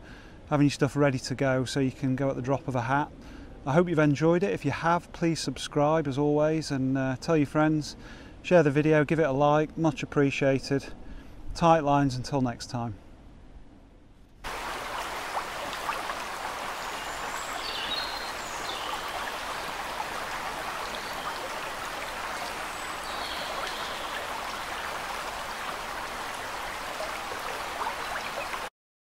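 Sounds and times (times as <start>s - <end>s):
running water rushing: 14.4s - 28.7s.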